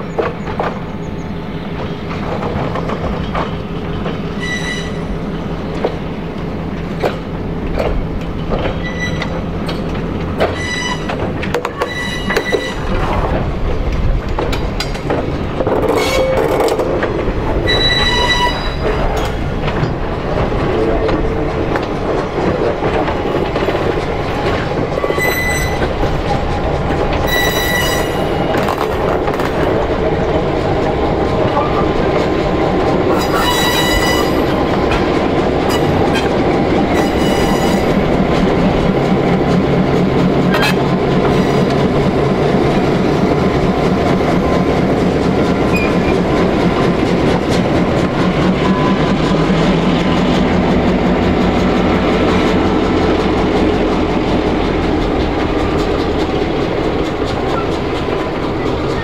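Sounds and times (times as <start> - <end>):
train wheels rumbling on rails: 0.0 - 59.0
wheel flanges squealing: 4.3 - 5.4, 8.4 - 13.2, 17.6 - 20.0, 23.6 - 29.1, 33.0 - 38.1.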